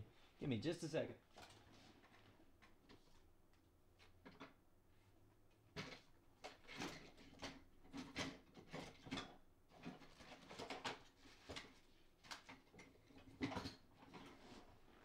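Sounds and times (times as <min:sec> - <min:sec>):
rummaging knocks clicks and rustles: 0:04.0 - 0:04.6, 0:05.7 - 0:15.0.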